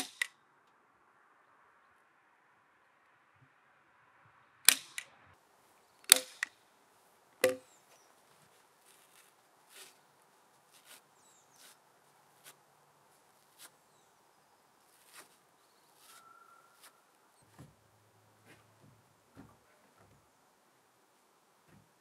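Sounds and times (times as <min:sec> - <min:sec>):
tool striking timber: 0:06.1 - 0:06.5, 0:07.4 - 0:07.6.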